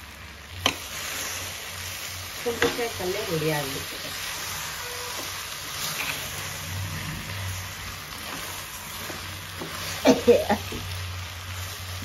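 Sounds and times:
food sizzling in a pot: 0:00.0 - 0:12.0.

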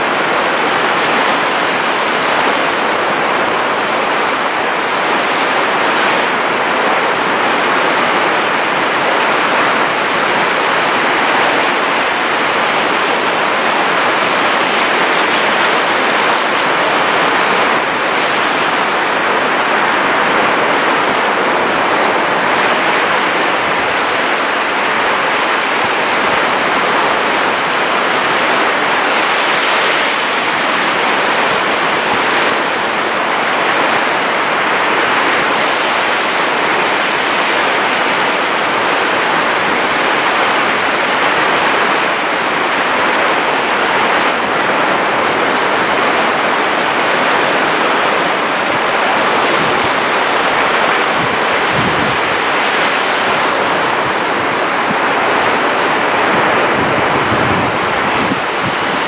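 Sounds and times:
surf washing up a beach: 0:00.0 - 0:59.0.

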